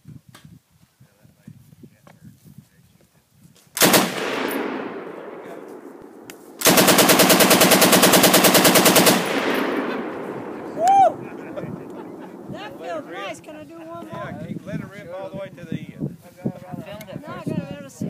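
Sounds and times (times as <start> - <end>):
machine gun firing bursts: 3.8 - 5.6, 6.5 - 10.7.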